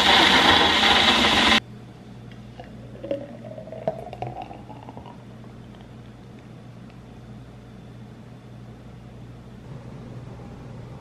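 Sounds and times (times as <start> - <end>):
blender running: 0.0 - 1.6
smoothie pouring into glass: 0.0 - 1.6, 2.6 - 5.2.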